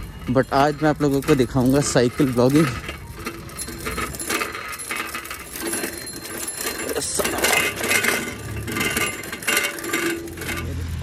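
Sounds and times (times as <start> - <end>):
bicycle rattling over rough track: 0.0 - 11.0
loose metal parts jangling: 0.0 - 11.0.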